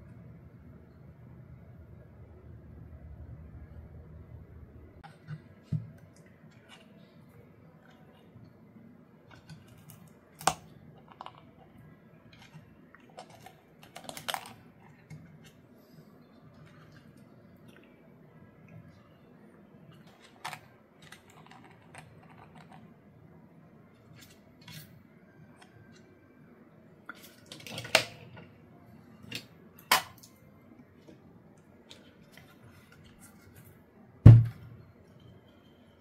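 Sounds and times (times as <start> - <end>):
heavy thump: 34.3 - 34.6.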